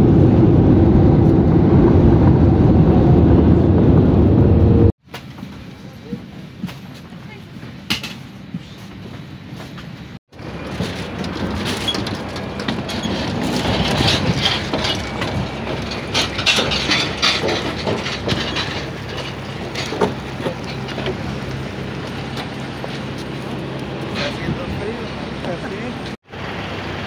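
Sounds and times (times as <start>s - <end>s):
footsteps on metal steps: 5.1s - 23.5s
suitcase clanking down metal steps: 10.4s - 21.5s.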